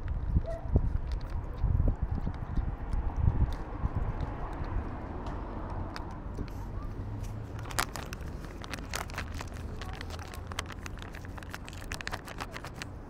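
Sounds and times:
foil packet crinkling: 7.4 - 13.0.

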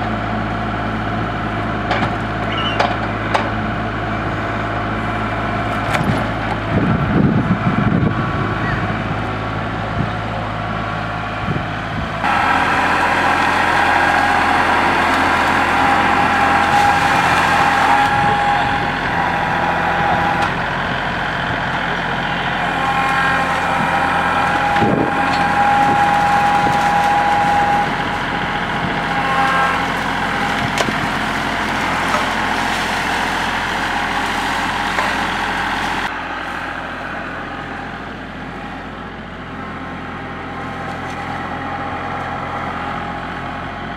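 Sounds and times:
tractor diesel engine running: 0.0 - 43.9
steady high whine: 6.5 - 33.4.

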